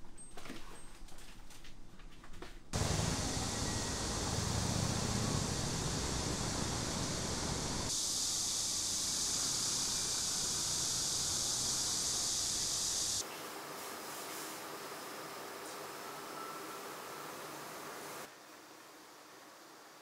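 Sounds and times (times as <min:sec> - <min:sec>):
passing traffic rumble: 0:02.8 - 0:07.9
steady high-pitched hiss: 0:02.8 - 0:20.0.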